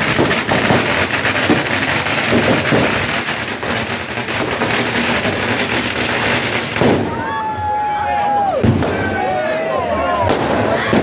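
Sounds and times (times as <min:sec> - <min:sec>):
firecrackers crackling: 0:00.0 - 0:11.0.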